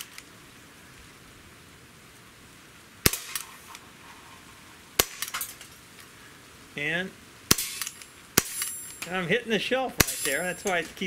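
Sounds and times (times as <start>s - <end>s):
air pistol shots: 3.0s - 3.8s, 5.0s - 5.6s, 7.5s - 9.0s, 10.0s - 10.8s.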